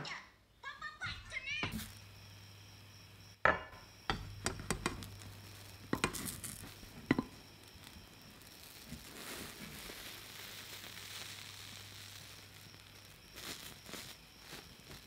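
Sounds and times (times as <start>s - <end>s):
sharp clicks and pops: 4.1s - 15.0s.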